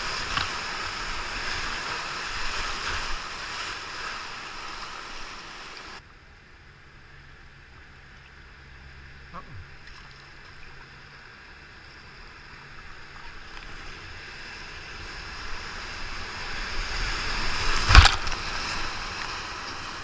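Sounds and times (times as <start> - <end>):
whitewater rushing: 0.0 - 6.0, 12.4 - 20.0
kayak splashing into water: 17.2 - 19.5.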